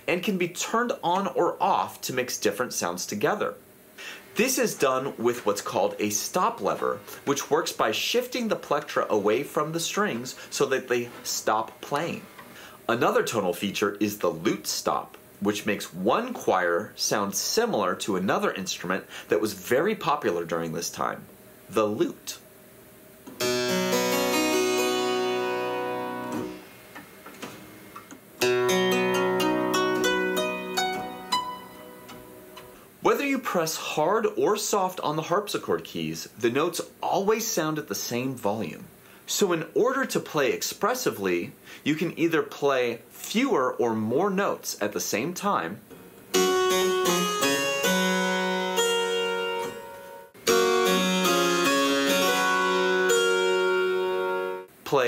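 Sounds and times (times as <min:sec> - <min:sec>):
harpsichord chord: 0:23.4 - 0:26.7, 0:28.4 - 0:32.7, 0:46.3 - 0:54.7.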